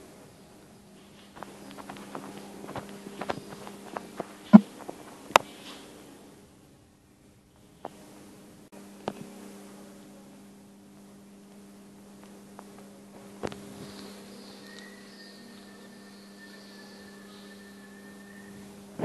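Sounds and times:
thin high whine: 0:00.0 - 0:06.8, 0:07.4 - 0:19.0
low electrical hum: 0:00.0 - 0:19.0
faint clicks: 0:12.2 - 0:14.9.

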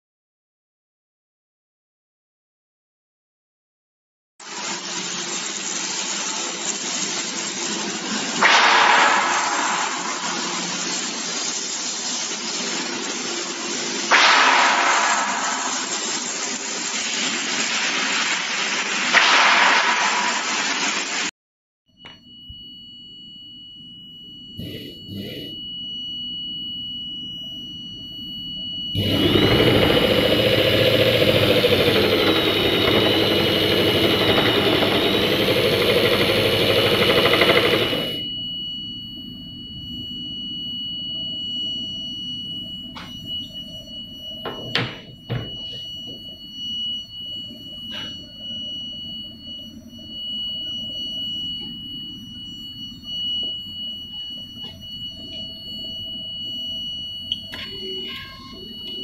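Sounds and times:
high-pitched whine: 0:08.2 - 0:21.3, 0:22.0 - 0:59.0
vibrating motor harsh buzz: 0:24.6 - 0:25.6, 0:29.0 - 0:38.2.

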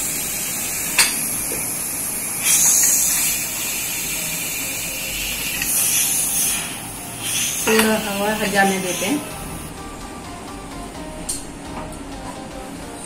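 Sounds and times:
steam hissing from pressure cooker: 0:00.0 - 0:09.7.

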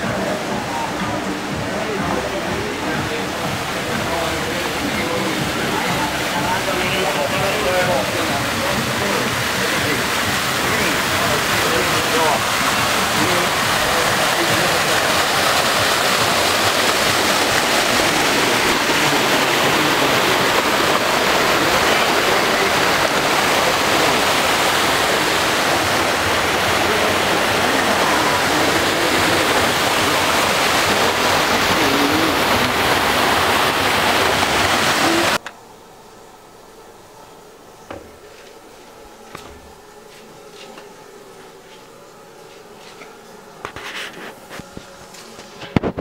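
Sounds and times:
fountain water splashing: 0:00.0 - 0:35.4.

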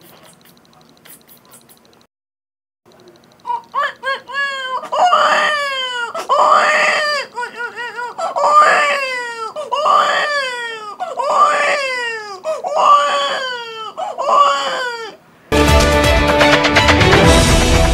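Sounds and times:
man imitating wailing cries: 0:03.5 - 0:15.2.

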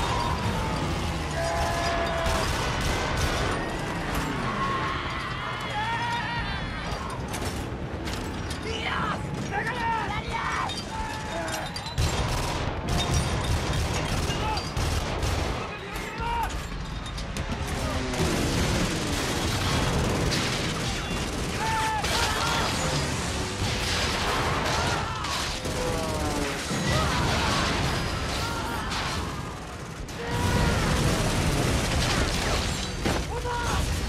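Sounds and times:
men shouting and crying: 0:00.0 - 0:02.8, 0:03.4 - 0:07.4, 0:08.6 - 0:11.9, 0:20.8 - 0:23.2, 0:24.2 - 0:31.5
anti-aircraft gunfire: 0:01.6 - 0:04.2, 0:17.4 - 0:33.1.

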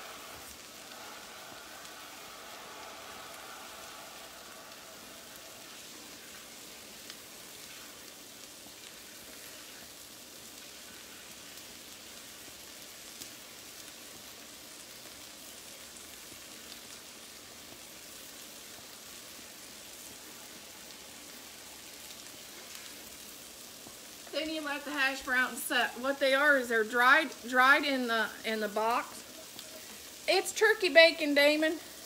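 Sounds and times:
bacon sizzling on a griddle: 0:00.0 - 0:32.0.

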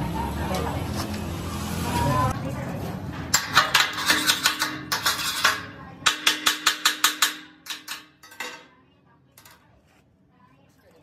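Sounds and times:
chipping hammer striking metal tank: 0:03.3 - 0:08.6.

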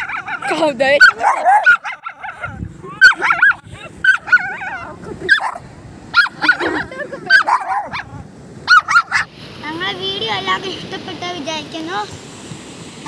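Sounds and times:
small dogs barking: 0:00.0 - 0:09.3.

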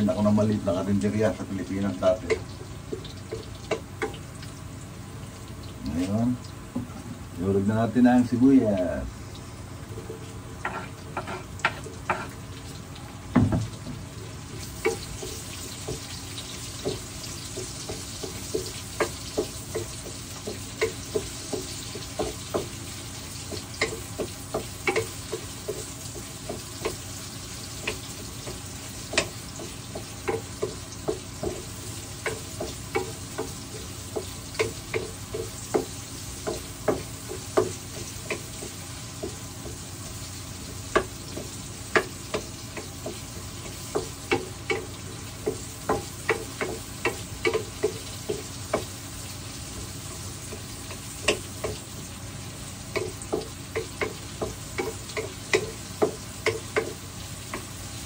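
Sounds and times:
onion sizzling in frying pan: 0:00.0 - 0:58.0
wooden spoon knocking on pan: 0:13.3 - 0:13.8, 0:16.8 - 0:22.8, 0:23.4 - 0:27.0, 0:27.7 - 0:39.8, 0:40.9 - 0:49.0, 0:50.5 - 0:51.8, 0:52.9 - 0:57.7.

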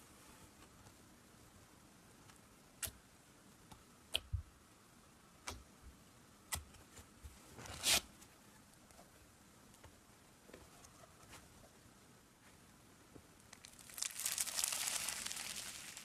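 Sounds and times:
slime crackling squish: 0:13.5 - 0:16.0.

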